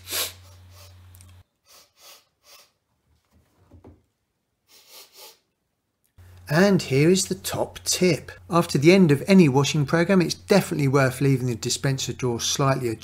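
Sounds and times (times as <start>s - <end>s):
man sniffing: 0.0s - 1.0s, 1.6s - 2.8s, 4.6s - 5.5s.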